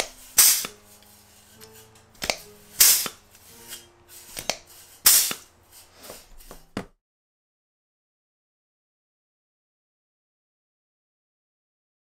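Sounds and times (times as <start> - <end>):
exhaust air hiss: 0.0 - 0.8, 2.8 - 3.2, 5.0 - 6.1
rivet squeezer snap: 0.0 - 0.8, 2.2 - 3.2, 4.3 - 5.5
sharp click: 2.2 - 3.2.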